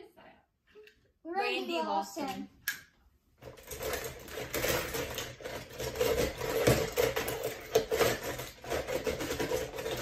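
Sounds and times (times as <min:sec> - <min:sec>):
metal toy cars clattering in bowl: 0:03.4 - 0:10.0.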